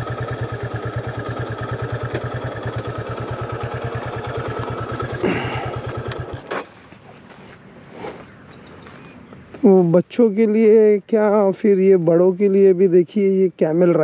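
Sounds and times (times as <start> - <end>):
motorcycle engine idling: 0.0 - 7.4.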